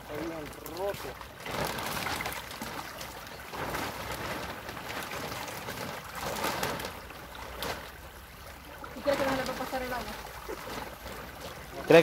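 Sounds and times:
creek water trickling: 0.0 - 12.0
water splashes: 0.0 - 12.0.

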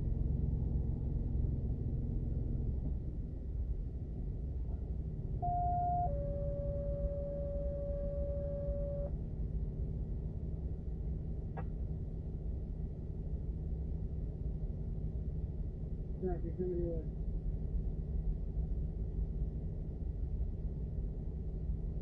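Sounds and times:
low car rumble: 0.0 - 22.0
two-tone paging tones: 5.4 - 9.1.

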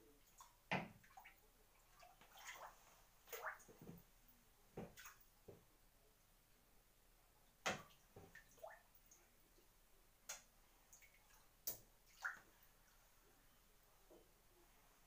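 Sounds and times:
water drips and splashes: 0.2 - 4.1, 4.8 - 5.6, 7.6 - 13.1.

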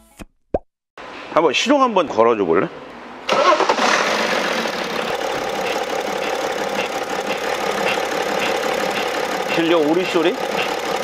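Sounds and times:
diesel engine starting and idling: 3.3 - 11.0.

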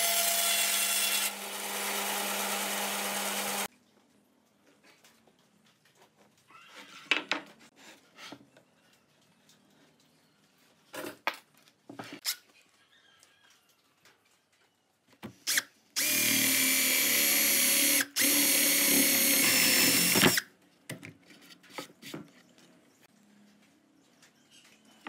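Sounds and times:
cordless drill boring wood: 0.0 - 3.7, 15.5 - 20.4.

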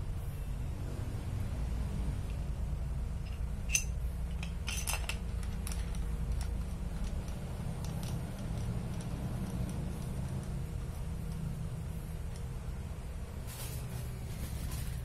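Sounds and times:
metal parts clicking and clinking: 3.2 - 12.5.

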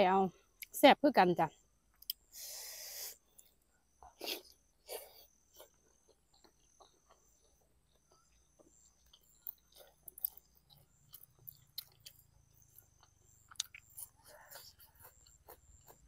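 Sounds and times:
close-up chewing: 3.3 - 16.0.

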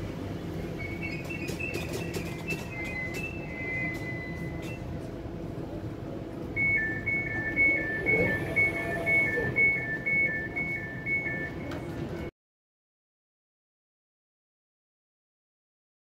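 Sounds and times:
train electrical hum: 0.0 - 12.3
two-tone electronic beeping: 6.6 - 11.7.

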